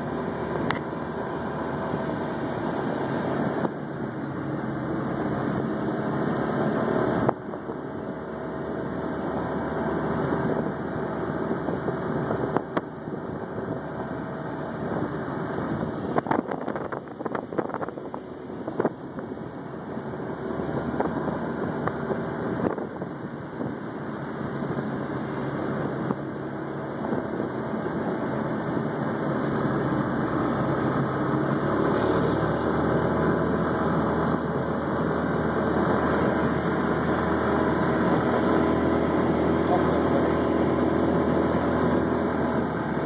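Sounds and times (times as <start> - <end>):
small engine running: 0.0 - 43.0
wind and road noise: 0.0 - 43.0.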